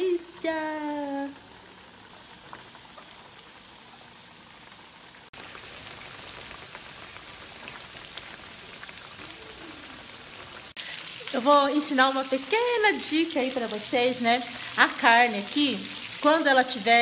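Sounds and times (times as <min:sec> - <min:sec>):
cutlets deep-frying in oil: 0:00.0 - 0:17.0.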